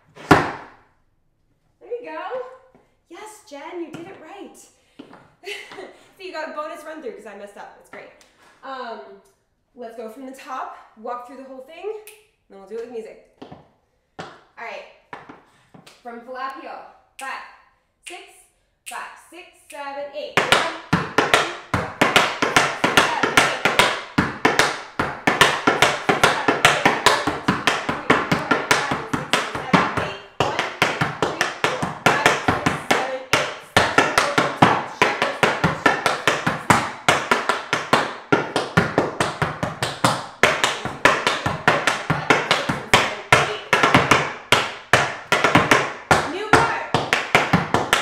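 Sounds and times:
tap shoes on wooden board: 0.2s - 0.7s, 3.8s - 4.2s, 13.4s - 14.4s, 15.1s - 15.9s, 20.4s - 48.0s.

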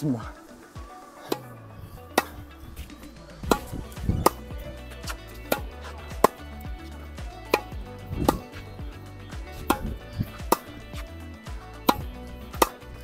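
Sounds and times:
tennis ball pops on rackets: 1.3s - 1.5s, 2.1s - 6.6s, 7.3s - 8.7s, 9.4s - 13.0s.

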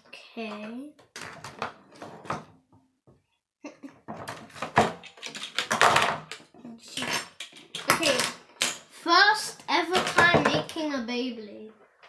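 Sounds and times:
toy parts clicking and rattling: 4.9s - 8.9s.

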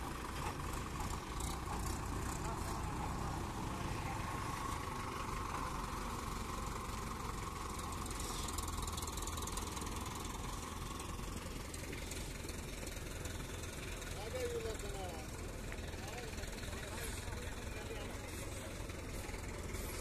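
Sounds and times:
diesel engines idling: 0.0s - 20.0s.

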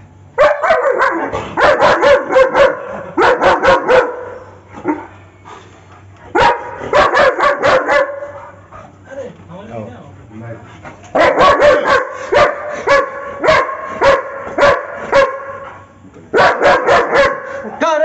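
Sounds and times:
dog barking: 0.4s - 5.2s, 6.3s - 8.6s, 11.1s - 15.7s, 16.3s - 17.6s.

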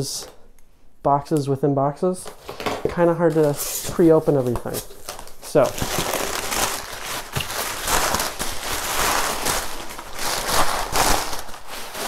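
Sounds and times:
packing paper crinkling: 3.3s - 12.0s.

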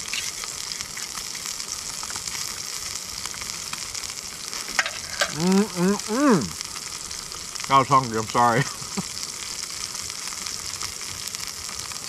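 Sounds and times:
background hiss: 0.0s - 12.0s
man humming while eating: 5.3s - 6.6s.

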